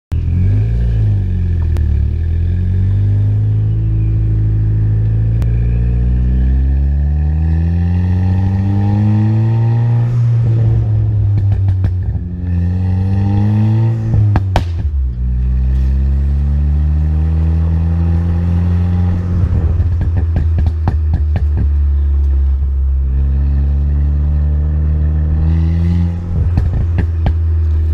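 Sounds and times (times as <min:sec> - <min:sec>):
car engine accelerating: 0:00.1 - 0:27.9
exhaust crackles and pops: 0:11.3 - 0:12.3, 0:14.2 - 0:15.2, 0:19.5 - 0:22.8, 0:26.4 - 0:27.9.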